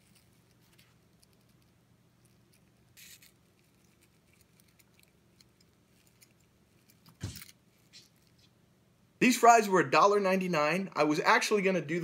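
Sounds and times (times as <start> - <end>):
soft rustle: 0.0 - 8.6
faint room hum: 0.0 - 12.0.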